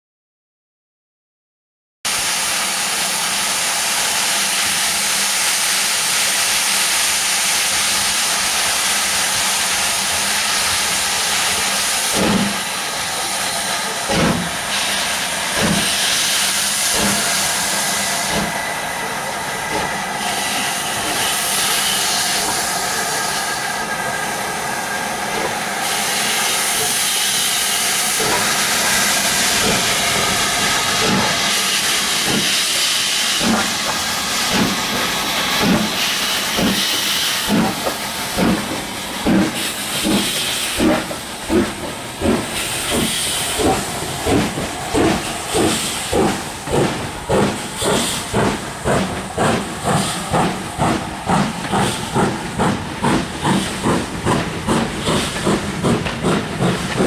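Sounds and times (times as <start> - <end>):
steam locomotive hissing: 2.1 - 57.0.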